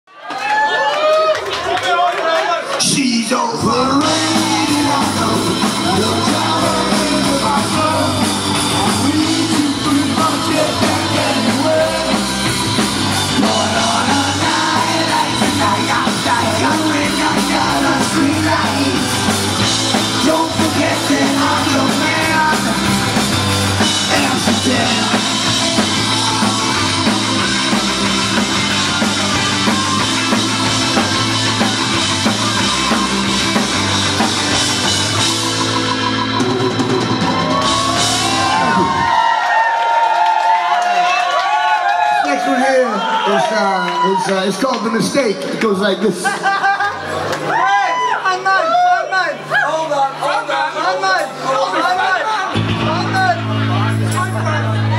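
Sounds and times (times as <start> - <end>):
person singing: 2.9 - 23.1, 23.8 - 27.1
live punk rock band: 3.6 - 42.0, 51.2 - 54.9.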